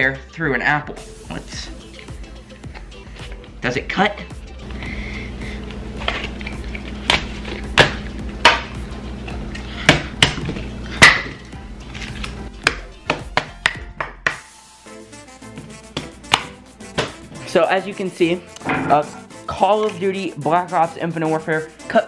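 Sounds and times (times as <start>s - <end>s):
background music: 0.0s - 22.0s
disc chopping apple on stone: 7.0s - 8.8s, 9.8s - 11.4s, 12.6s - 14.4s, 15.9s - 17.2s.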